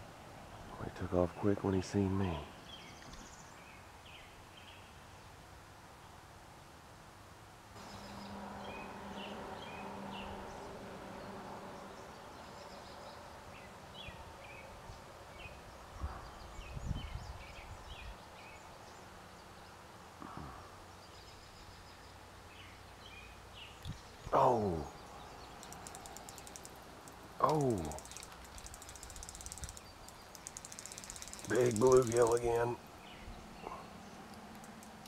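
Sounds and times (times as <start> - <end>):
birds chirping: 0.5 - 4.9, 7.8 - 35.0.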